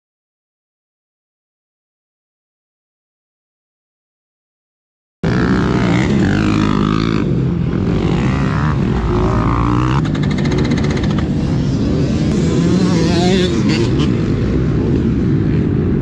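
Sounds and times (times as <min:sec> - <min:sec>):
dirt bike engine revving: 0:05.2 - 0:16.0.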